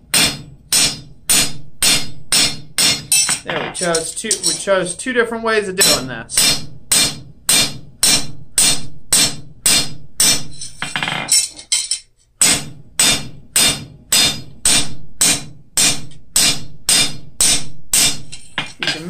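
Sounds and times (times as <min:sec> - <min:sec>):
hammer ringing on steel: 0:00.1 - 0:04.8, 0:05.8 - 0:10.8
metal piece clattering: 0:03.1 - 0:04.7, 0:10.5 - 0:12.2, 0:18.3 - 0:19.0.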